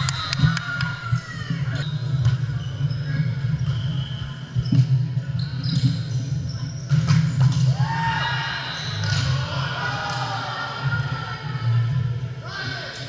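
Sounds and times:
sneakers squeaking on hardwood: 0:00.1 - 0:07.7.

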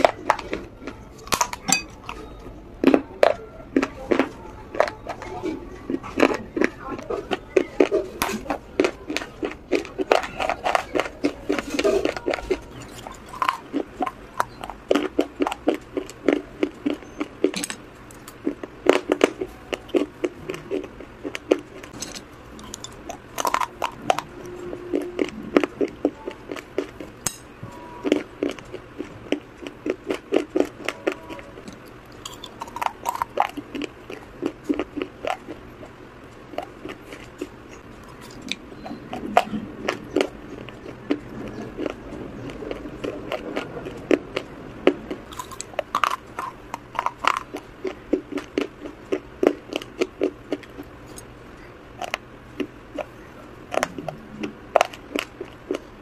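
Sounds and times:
crunching and chewing of brittle pieces: 0:00.0 - 0:56.0.

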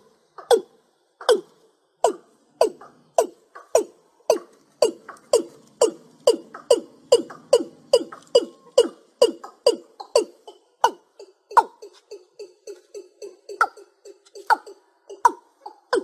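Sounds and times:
bird calling descending notes: 0:03.6 - 0:16.0.

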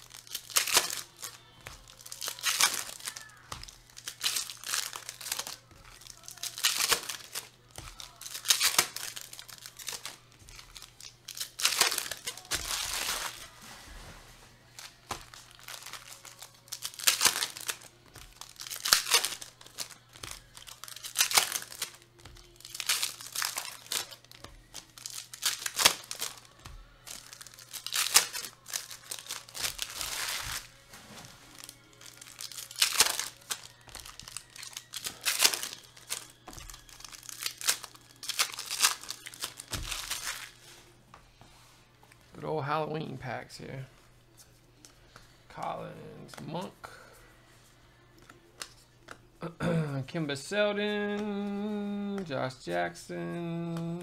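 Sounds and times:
cards shuffled: 0:00.0 - 0:14.1, 0:14.8 - 0:40.8
foil wrappers crinkling and tearing: 0:00.0 - 0:40.9.

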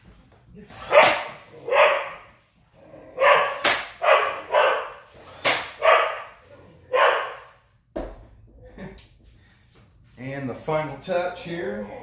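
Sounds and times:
dog barking: 0:00.9 - 0:02.4, 0:03.2 - 0:05.1, 0:05.7 - 0:07.6.

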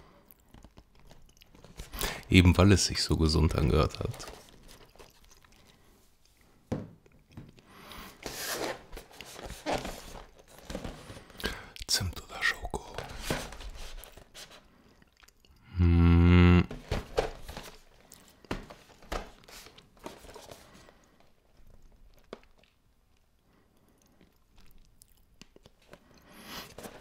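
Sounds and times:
person chewing crunchy cereal: 0:00.0 - 0:02.2, 0:03.6 - 0:08.2, 0:14.1 - 0:15.6, 0:20.6 - 0:27.0
person humming: 0:15.6 - 0:16.8.

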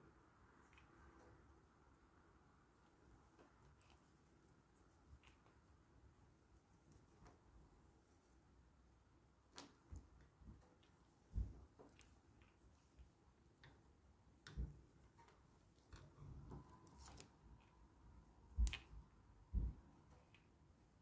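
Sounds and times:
knitting needle clicks: 0:09.4 - 0:17.9, 0:18.5 - 0:20.6.

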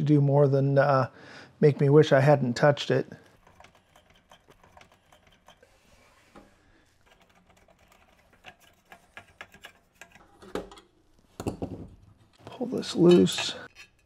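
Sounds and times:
screwdriver clicking and scraping: 0:03.3 - 0:05.7, 0:07.0 - 0:10.8.

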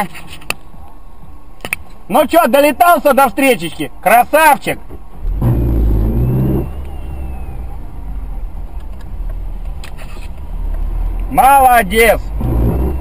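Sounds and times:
car engine rumble inside cabin: 0:05.1 - 0:13.0.

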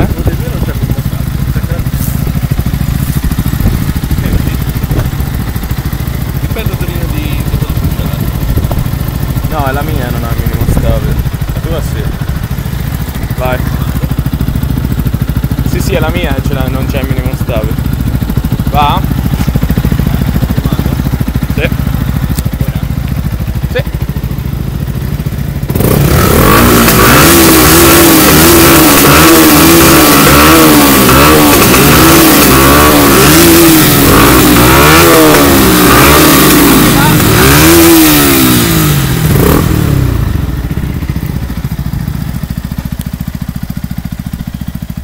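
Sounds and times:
motorcycle engine revving: 0:00.0 - 0:45.0.

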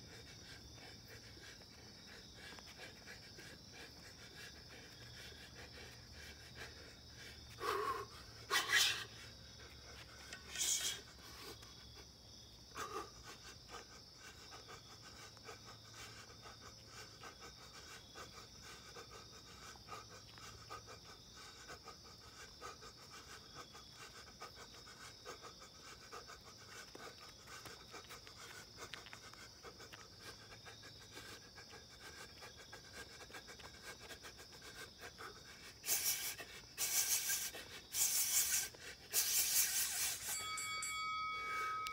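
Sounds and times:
insects chirring: 0:00.0 - 0:41.9
loud hissing bursts: 0:35.8 - 0:40.2.

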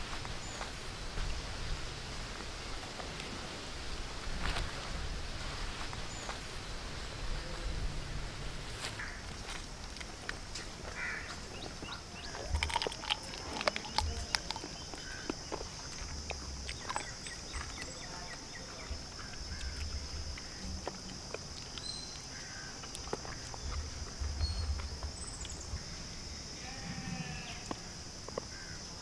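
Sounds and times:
mouth chewing: 0:09.5 - 0:10.8, 0:11.4 - 0:25.9
high insect buzz: 0:10.4 - 0:29.0
wet eating clicks and smacks: 0:11.8 - 0:25.6.

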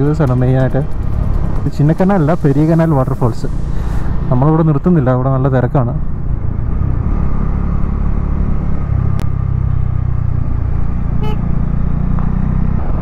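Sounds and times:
motorcycle engine running: 0:00.0 - 0:02.9, 0:06.0 - 0:13.0
wind and road rush: 0:00.0 - 0:13.0.

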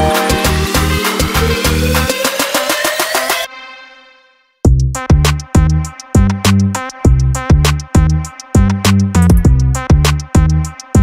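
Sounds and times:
electronic music: 0:00.0 - 0:04.3, 0:05.1 - 0:11.0
deep bass hits: 0:04.7 - 0:10.5.

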